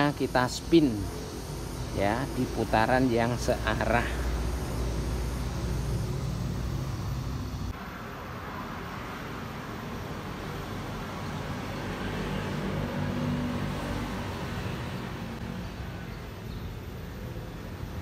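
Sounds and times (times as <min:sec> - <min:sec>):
low motor hum: 0:00.0 - 0:07.8.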